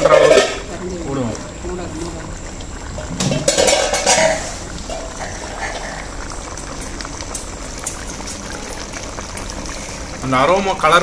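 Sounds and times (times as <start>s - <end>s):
curry bubbling in pot: 0.0s - 11.0s
ladle clinking against metal pot: 3.3s - 5.1s.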